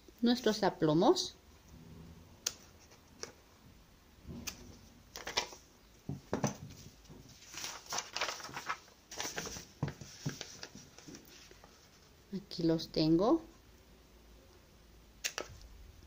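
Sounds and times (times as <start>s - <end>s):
paper rustling: 2.5s - 3.4s, 4.3s - 12.1s.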